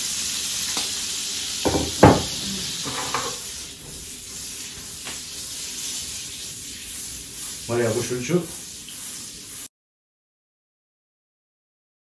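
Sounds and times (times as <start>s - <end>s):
butter and oil sizzling in a pan: 0.0s - 9.7s
pan knocking on burner grate: 1.6s - 3.4s.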